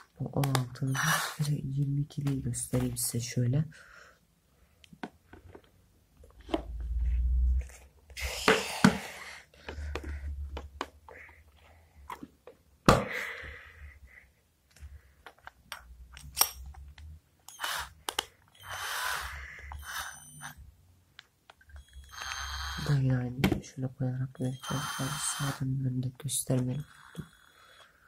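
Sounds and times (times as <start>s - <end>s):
drill motor running: 17.5s - 17.9s, 18.6s - 20.6s, 21.8s - 23.0s, 24.5s - 25.7s, 26.8s - 27.6s.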